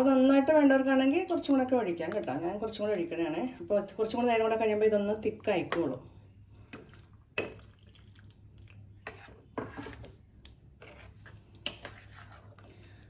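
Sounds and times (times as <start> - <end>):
spoon stirring curry in pot: 9.0 - 12.9.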